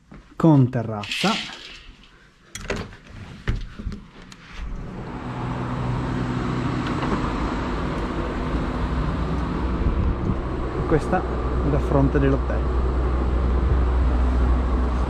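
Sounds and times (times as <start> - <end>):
road traffic rumble: 4.6 - 15.0.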